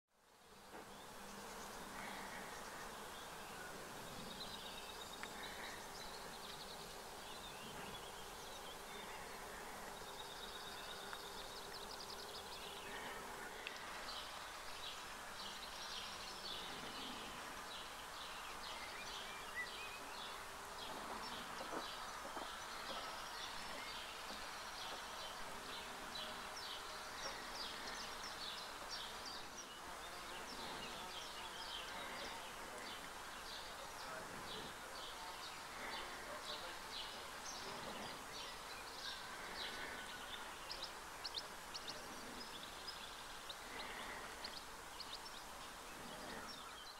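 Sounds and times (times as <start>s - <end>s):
insect buzzing hum: 0.2s - 46.9s.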